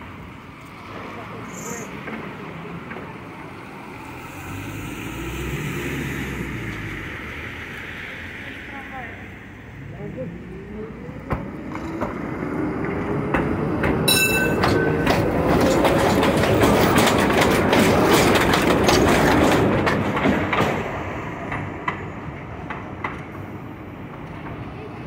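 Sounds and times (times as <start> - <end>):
wheels clacking over rail joints: 0.6 - 4.0, 11.2 - 25.0.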